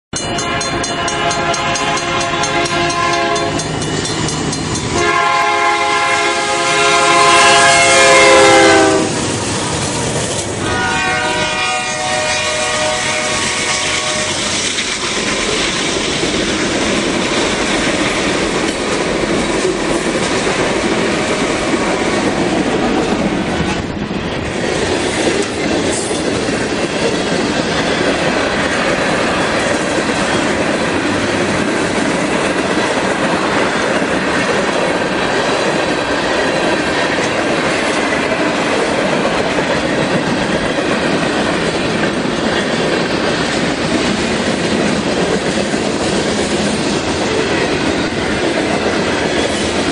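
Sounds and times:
train wheels rumbling on rail: 0:00.1 - 0:49.9
locomotive air horn blasts: 0:00.3 - 0:03.6, 0:05.0 - 0:09.3, 0:10.6 - 0:14.6.

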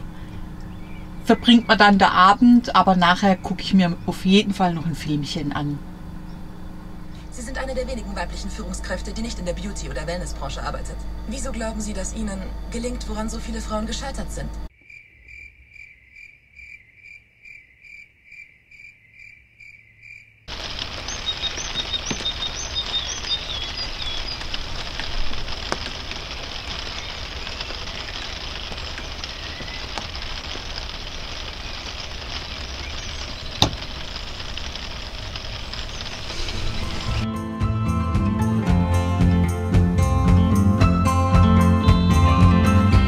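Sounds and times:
cricket-like chirping: 0:06.0 - 0:36.3
faint clicks: 0:20.5 - 0:37.2
steady rushing noise: 0:20.5 - 0:37.2.

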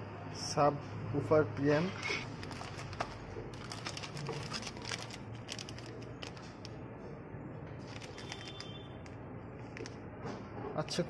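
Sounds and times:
plastic packaging crinkling: 0:02.3 - 0:06.8, 0:07.8 - 0:10.0.

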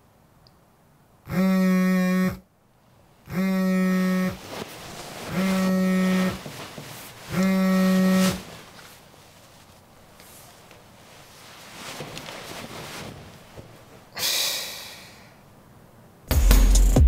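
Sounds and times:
smartphone alarm buzzy tone: 0:01.3 - 0:02.4, 0:03.3 - 0:04.4, 0:05.3 - 0:06.3, 0:07.3 - 0:08.4.

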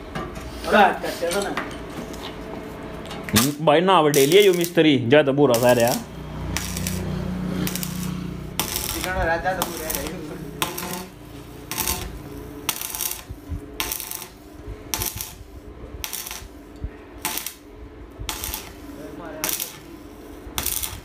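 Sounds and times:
steady low hum: 0:00.0 - 0:21.0
welding arc crackling: 0:03.3 - 0:21.0.

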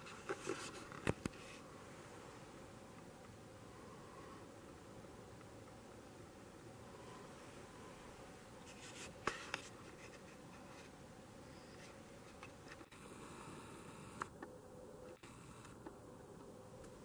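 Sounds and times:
sharp clicks: 0:14.1 - 0:14.5.

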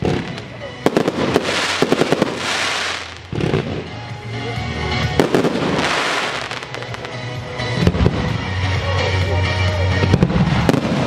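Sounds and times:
fireworks bangs: 0:00.0 - 0:04.0, 0:05.2 - 0:08.4, 0:10.1 - 0:11.0
fireworks crackling: 0:00.0 - 0:04.2, 0:05.0 - 0:08.5, 0:10.0 - 0:11.0
music: 0:00.0 - 0:11.0.

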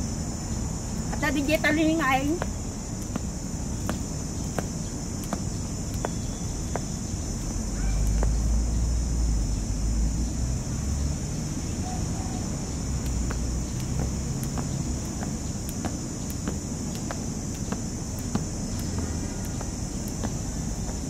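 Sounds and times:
high insect drone: 0:00.0 - 0:21.0
jump rope ticking on paving: 0:01.3 - 0:08.6, 0:12.8 - 0:21.0.

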